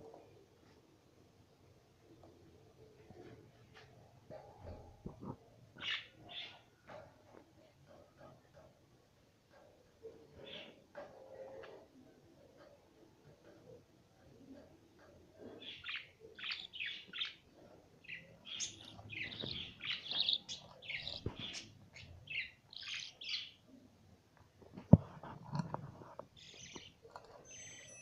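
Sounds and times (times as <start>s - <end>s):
budgerigars chirping: 15.6s - 17.4s, 18.0s - 23.6s.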